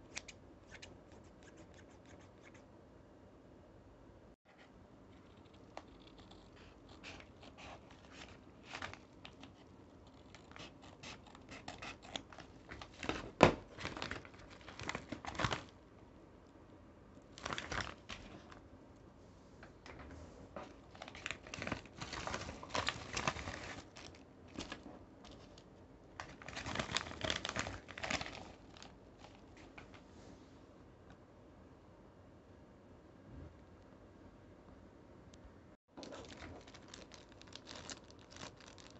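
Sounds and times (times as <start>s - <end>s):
paper and bubble wrap tearing: 17.4s - 18.0s, 26.3s - 28.9s, 36.0s - 38.9s.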